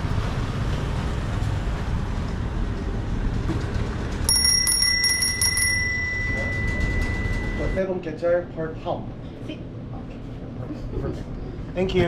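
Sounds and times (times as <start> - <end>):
small bell ringing: 4.3 - 7.8.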